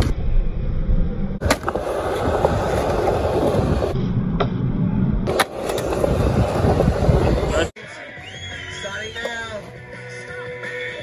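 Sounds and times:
skateboard wheels rolling on concrete: 1.4 - 7.7.

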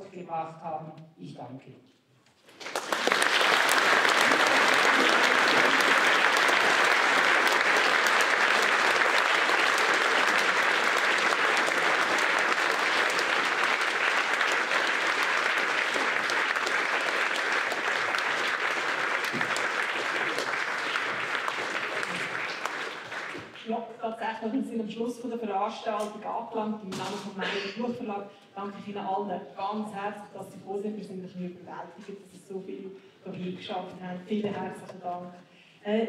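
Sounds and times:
audience applauding: 2.4 - 23.6.

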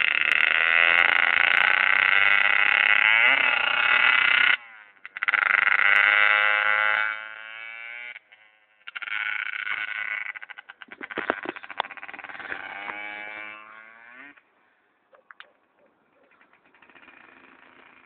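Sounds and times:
small electric motor buzzing: 0.0 - 14.4.

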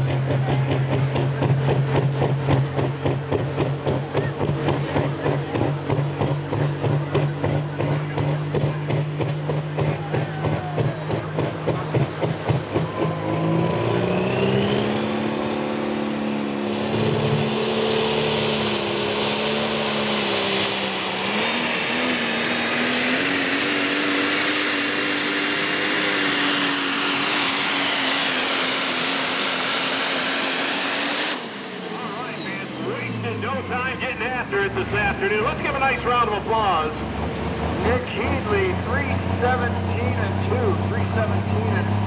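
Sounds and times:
diesel truck engine at full throttle: 0.0 - 42.0
high whine: 30.3 - 37.0.

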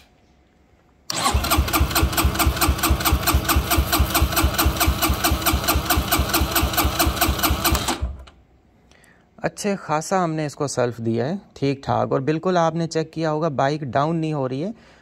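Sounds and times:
starter motor cranking engine: 1.1 - 8.4.

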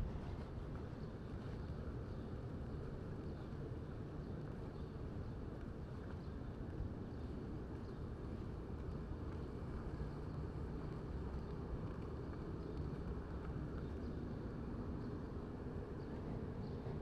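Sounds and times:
city street ambience: 0.0 - 17.0.

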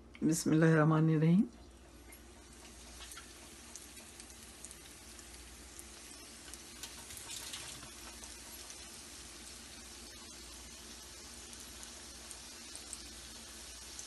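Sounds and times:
food deep-frying in oil: 1.6 - 14.0.

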